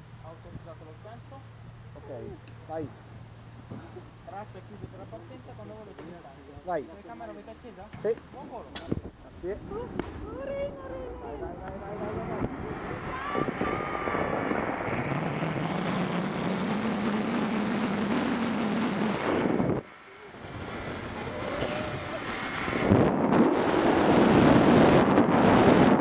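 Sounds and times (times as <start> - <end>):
wind rushing over microphone: 8.0 - 26.0.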